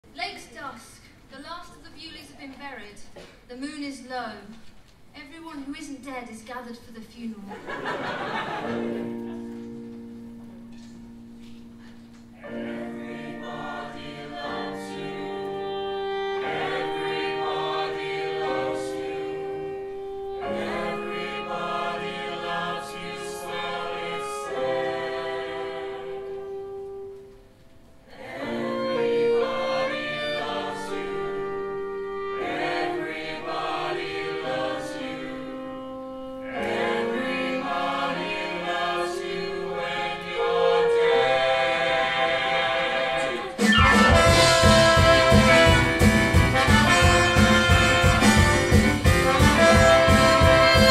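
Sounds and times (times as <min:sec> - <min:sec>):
group of voices singing: 0:12.4 - 0:26.7, 0:28.1 - 0:31.5, 0:32.4 - 0:35.5, 0:36.4 - 0:46.1.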